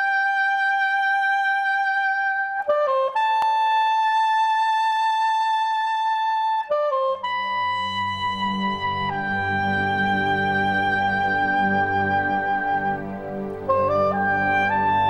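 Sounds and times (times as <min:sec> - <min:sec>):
slow melody of long held notes: 0:06.7 - 0:15.0
low accompaniment: 0:06.8 - 0:15.0.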